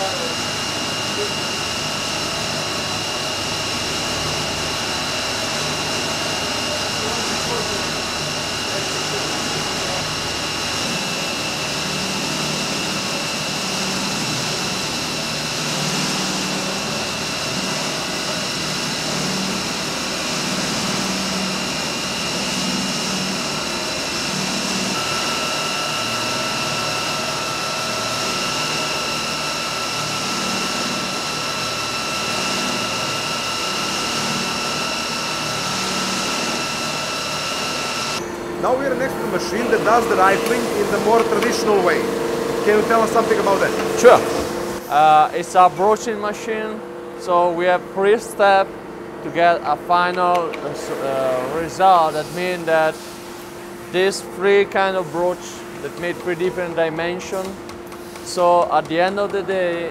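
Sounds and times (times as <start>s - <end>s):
factory machinery running: 0.0s - 59.9s
high mechanical whines: 0.0s - 59.9s
steady tone: 16.4s - 45.5s.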